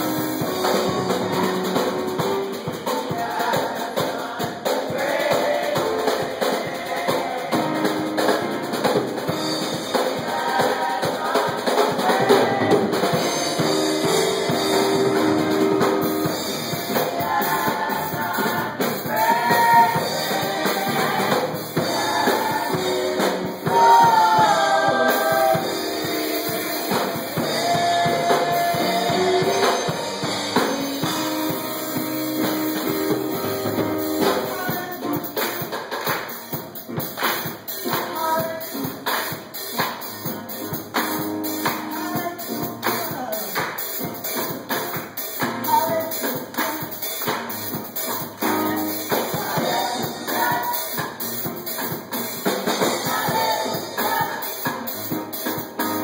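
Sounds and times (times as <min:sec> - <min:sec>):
drum kit and band: 0:00.0 - 0:56.0
women singing gospel song: 0:02.9 - 0:08.3, 0:09.8 - 0:14.6, 0:16.5 - 0:30.1, 0:48.4 - 0:51.2, 0:52.6 - 0:55.0.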